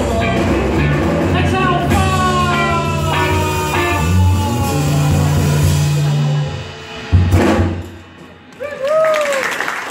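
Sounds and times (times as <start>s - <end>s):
guitar notes gliding downward: 0.0s - 7.5s
rock band playing: 0.0s - 9.9s.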